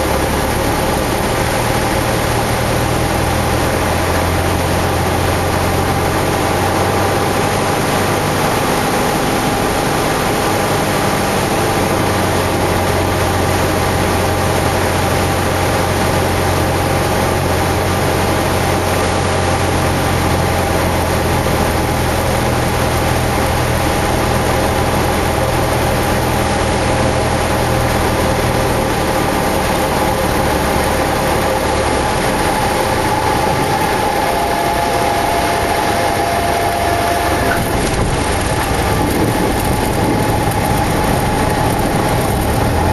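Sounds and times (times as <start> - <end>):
aircraft engine droning: 0.0 - 42.9
airflow noise: 0.0 - 42.9
thin steady tone: 29.9 - 37.8.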